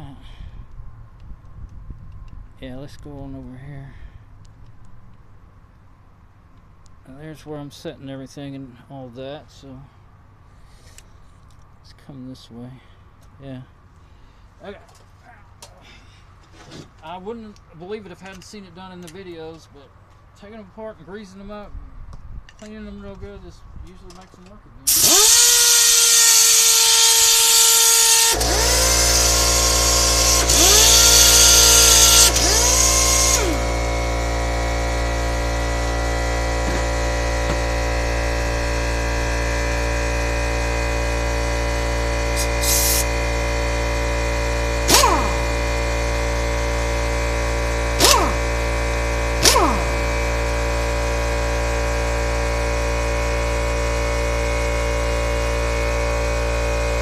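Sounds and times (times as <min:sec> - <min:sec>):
air compressor humming: 0:24.9 - 0:57.0
air impact wrench spinning: 0:24.9 - 0:57.0
compressed air hissing: 0:42.4 - 0:43.2.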